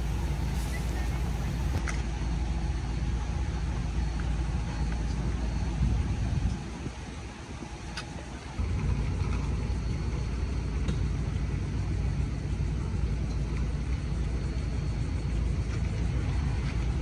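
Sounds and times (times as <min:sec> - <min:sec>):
vehicle engine idling: 0:00.0 - 0:06.4.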